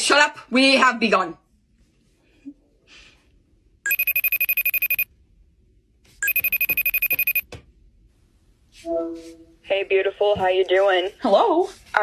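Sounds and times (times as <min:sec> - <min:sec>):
telephone ringing: 0:03.9 - 0:05.1, 0:06.2 - 0:07.4.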